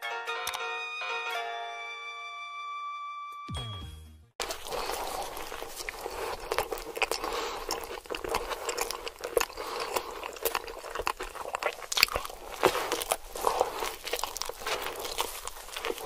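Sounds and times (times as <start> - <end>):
sandwich chewing mouth sounds: 4.4 - 16.0.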